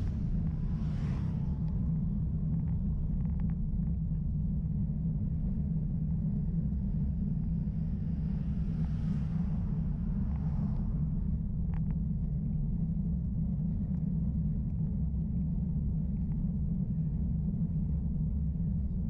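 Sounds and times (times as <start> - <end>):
motorcycle passing: 0.0 - 1.8
wind and road noise: 0.0 - 19.0.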